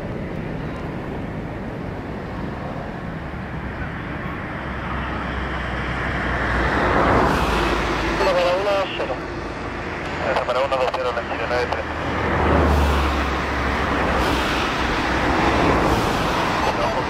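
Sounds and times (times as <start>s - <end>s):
jet engines running: 0.0s - 17.0s.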